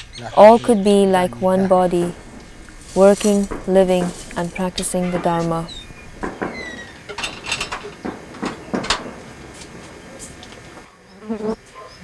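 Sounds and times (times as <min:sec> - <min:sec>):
person speaking: 0:00.2 - 0:06.0
sharp knocks and clicks: 0:01.3 - 0:10.6.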